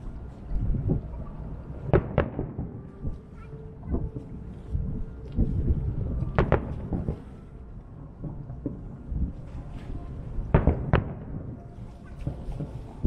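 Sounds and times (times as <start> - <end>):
distant firework booms: 5.4 - 7.4, 10.4 - 11.6
firework cracks: 6.2 - 7.4.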